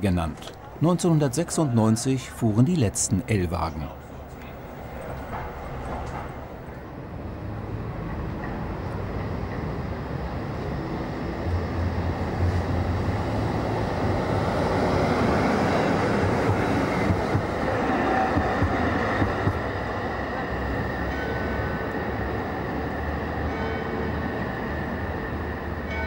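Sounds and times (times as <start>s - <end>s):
tram wheels rumbling on rails: 0.0s - 26.0s
tram running gear knocks: 18.3s - 19.7s.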